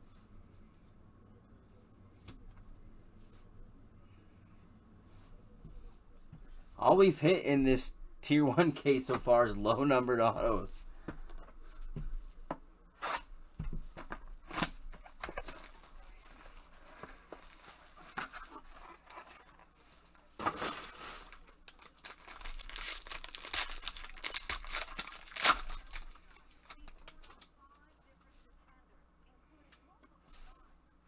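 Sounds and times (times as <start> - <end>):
plastic wrapper ripping and crinkling: 14.4 - 27.5.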